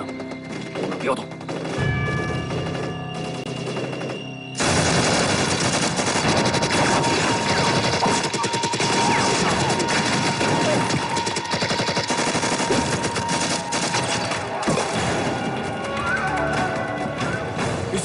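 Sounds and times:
heavy gunfire barrage: 3.2 - 15.6.

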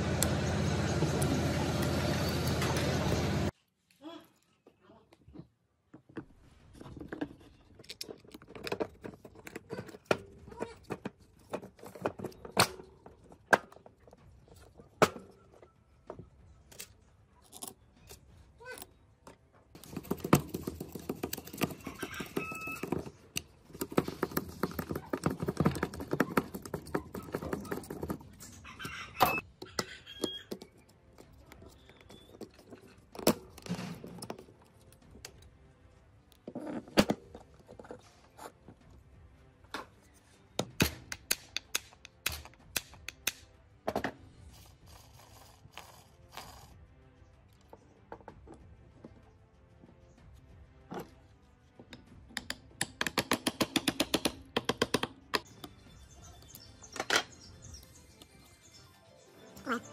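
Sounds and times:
plastic and metal knocking: 19.8 - 28.4, 52.4 - 55.5.

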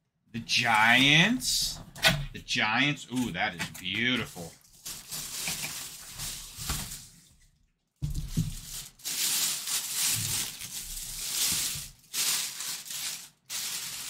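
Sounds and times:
plastic bag crinkling: 3.8 - 14.0.

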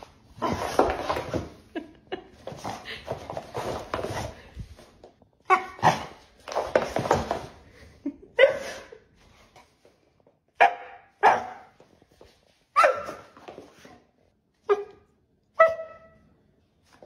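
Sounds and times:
dog barking: 10.6 - 11.7.

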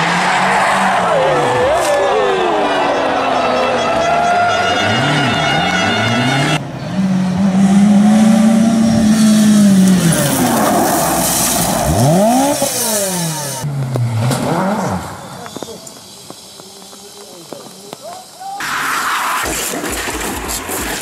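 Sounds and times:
rally car engines revving: 0.0 - 15.9.

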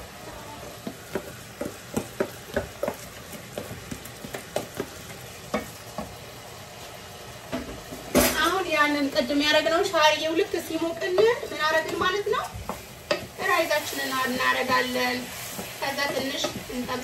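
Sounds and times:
noodles sizzling in oil: 0.0 - 17.0
spoon scraping and tapping pot: 12.7 - 13.3.

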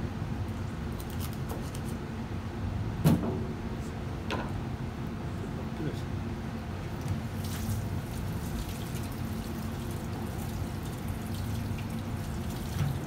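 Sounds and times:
water running from faucet: 7.4 - 13.0.

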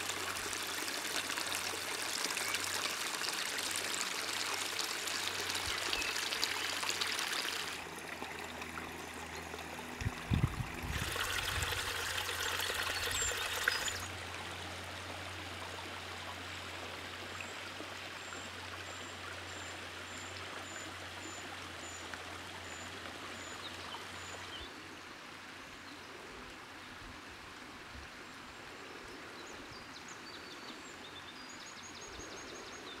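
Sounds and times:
water rushing over muddy path: 0.0 - 16.7.

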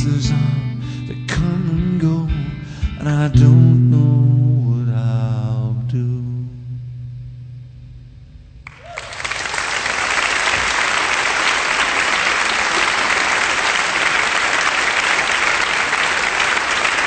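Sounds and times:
guitar chord: 0.0 - 8.6
audience applause: 8.7 - 17.0.

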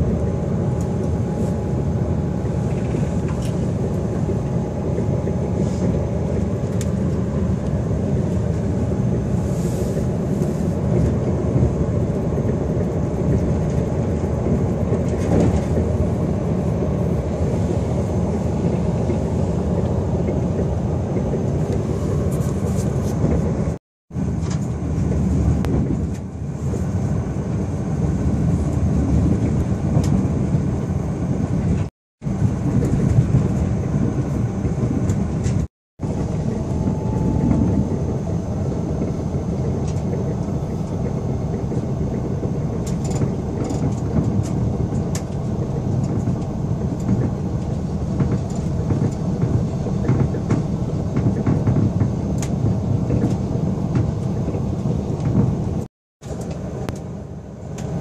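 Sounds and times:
train running rumble: 0.0 - 58.0.

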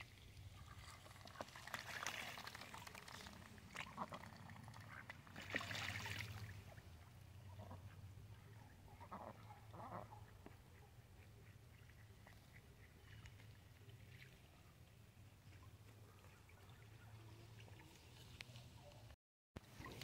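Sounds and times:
ducks quacking: 8.9 - 10.6.

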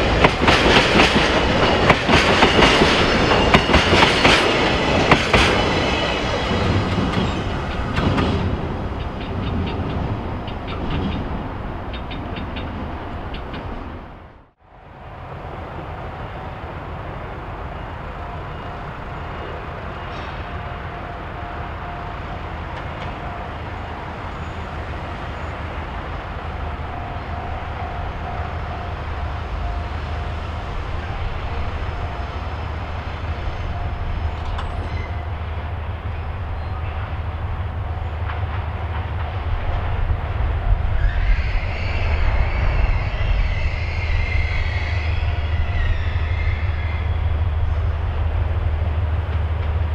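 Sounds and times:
diesel locomotive engine drone: 0.0 - 49.9
train wheels squealing: 33.3 - 35.4, 40.8 - 48.1.

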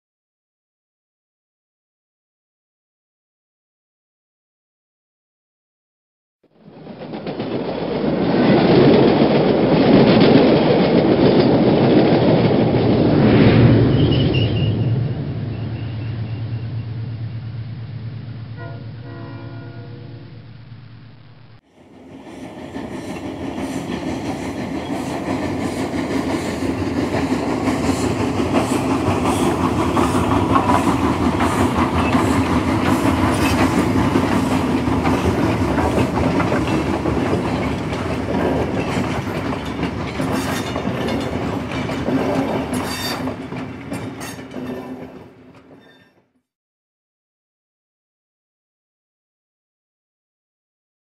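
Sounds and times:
model train rumbling on track: 6.5 - 21.1, 21.7 - 46.0.

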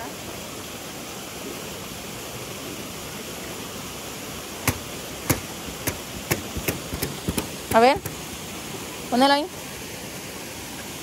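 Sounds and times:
waterfall pouring into pool: 0.0 - 11.0
sharp taps: 4.6 - 8.2.

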